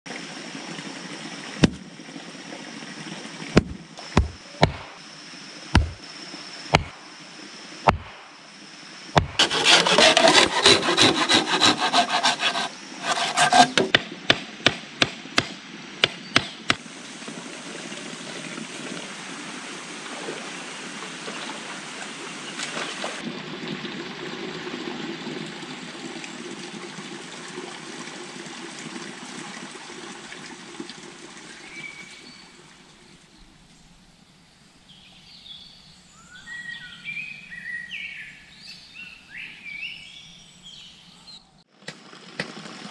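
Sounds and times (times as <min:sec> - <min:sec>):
sharp wooden knocks: 0:01.6 - 0:01.8, 0:03.6 - 0:04.9, 0:05.8 - 0:06.0, 0:06.7 - 0:06.9, 0:07.9 - 0:08.2, 0:09.2 - 0:16.8
wood scraping and knocking: 0:09.2 - 0:14.1.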